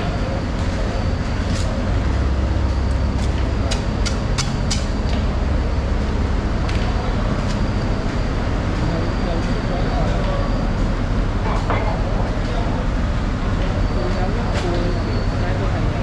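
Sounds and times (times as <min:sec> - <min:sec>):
market background rumble: 0:00.0 - 0:16.0
sharp ticks and clicks: 0:02.9 - 0:05.2.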